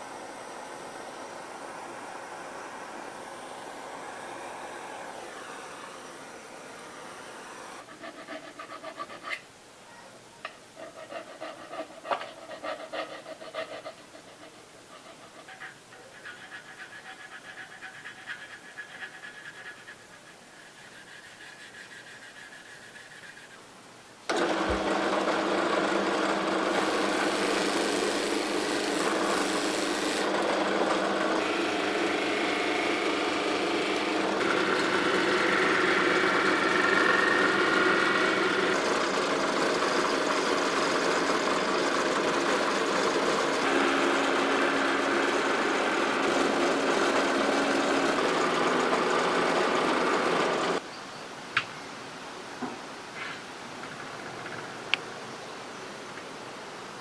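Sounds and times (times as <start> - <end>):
drill press running: 0.0 - 7.8, 24.3 - 50.8.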